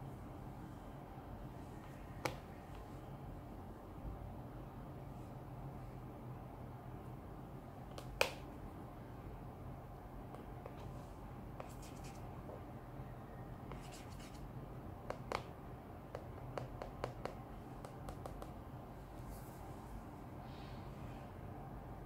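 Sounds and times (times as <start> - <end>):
faint low hum: 0.0 - 22.0
fingers tapping on phone backs: 15.1 - 15.5, 16.1 - 18.6.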